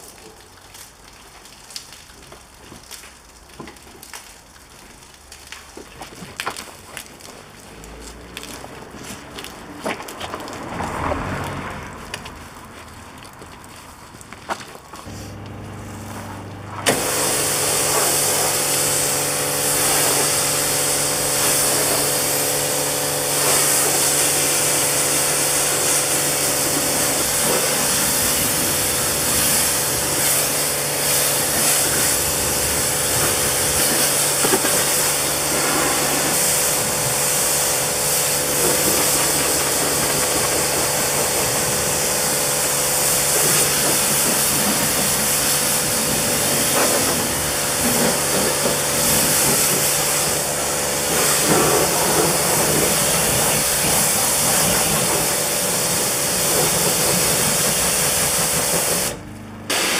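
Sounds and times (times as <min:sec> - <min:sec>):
loud even hiss: 0:15.1 - 0:59.9.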